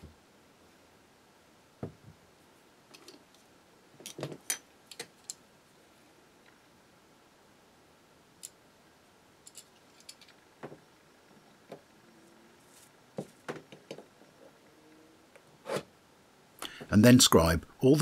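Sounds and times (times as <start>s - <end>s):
metal tools clicking and tapping: 4.0s - 5.4s, 9.4s - 10.4s.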